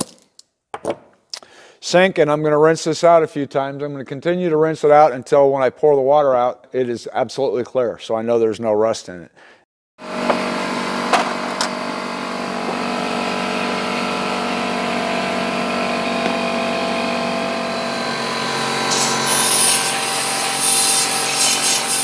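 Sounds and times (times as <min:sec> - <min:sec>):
steady machine hum: 0:10.0 - 0:21.5
compressed air hissing from nozzle: 0:18.6 - 0:22.0.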